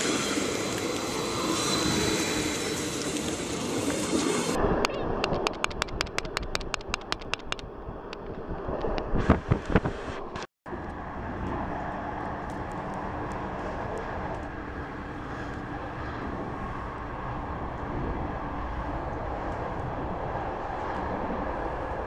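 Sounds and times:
passenger train passing: 0.0 - 6.1, 10.7 - 22.0
train rolling noise: 0.0 - 22.0.

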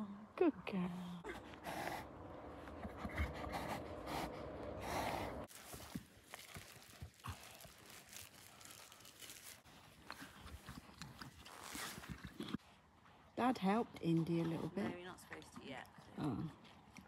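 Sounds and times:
rustling and crunching handling: 5.5 - 12.9.

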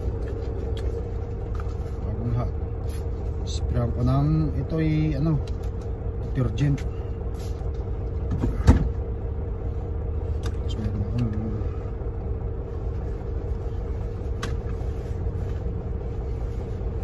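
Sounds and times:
truck engine rumble and hum: 0.0 - 17.0
paper towel wiping rustles: 12.6 - 17.0.

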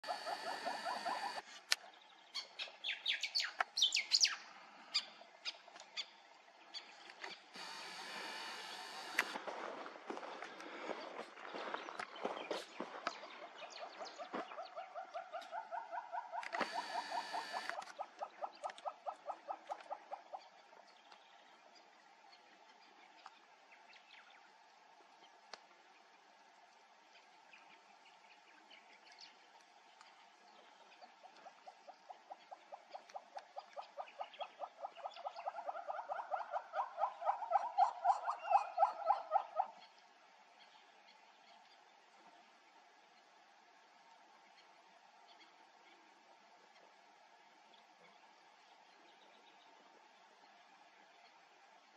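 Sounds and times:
animal call of pulsed notes: 0.0 - 1.4, 15.7 - 18.5.

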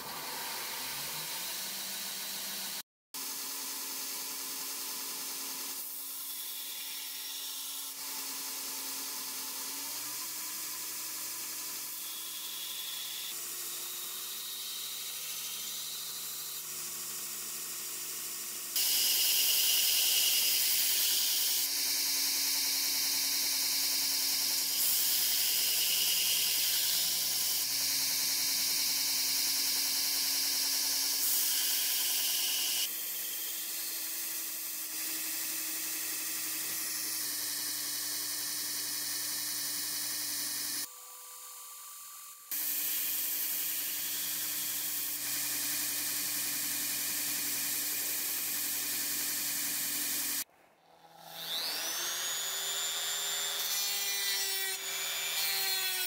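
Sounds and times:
belt grinder grinding steel blade: 18.7 - 40.9.

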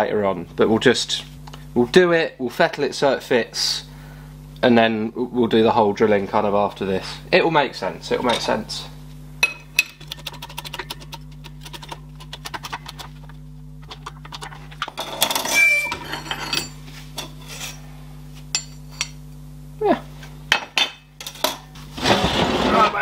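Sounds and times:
low electrical hum: 0.0 - 23.0
metal clattering scrape: 15.0 - 17.8, 21.9 - 23.0.

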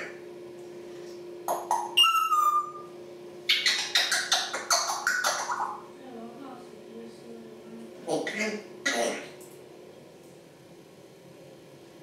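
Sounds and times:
steady low hum: 0.0 - 12.0
parrot calling and whistling: 1.5 - 2.9, 3.5 - 5.8
parrot clicks and squawks: 3.5 - 5.7.

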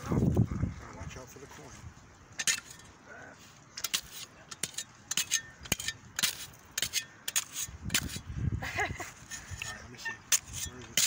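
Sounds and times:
trowel scraping frozen soil: 3.8 - 8.3, 9.2 - 11.0.

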